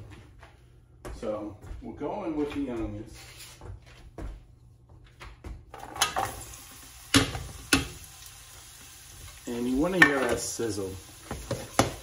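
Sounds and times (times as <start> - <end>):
oil sizzling: 5.8 - 12.0.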